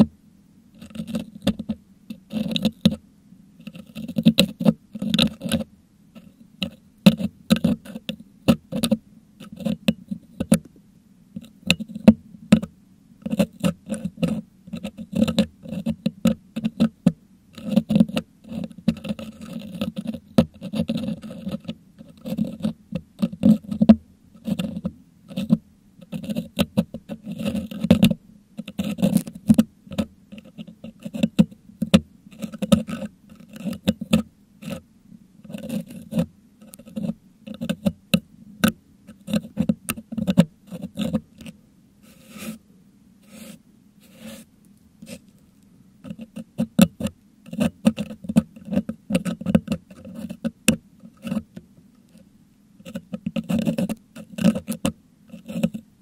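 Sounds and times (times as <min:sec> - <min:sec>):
metal hook scraping microphone grille: 0:00.8 - 0:03.0, 0:11.4 - 0:34.8, 0:35.4 - 0:42.6, 0:46.0 - 0:55.8.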